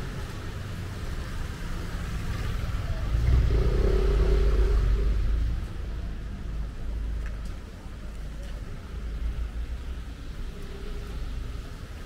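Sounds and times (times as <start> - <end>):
vehicle engine rumble passing: 0.0 - 7.2.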